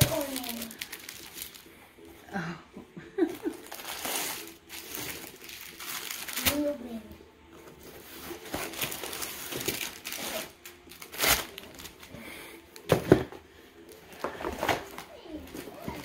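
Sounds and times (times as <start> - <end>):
plastic bags crinkling: 0.0 - 1.8, 3.4 - 6.7, 8.3 - 12.1.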